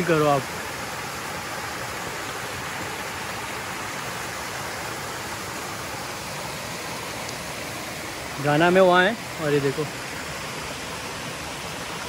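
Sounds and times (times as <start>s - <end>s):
flowing water rushing: 0.0s - 12.0s.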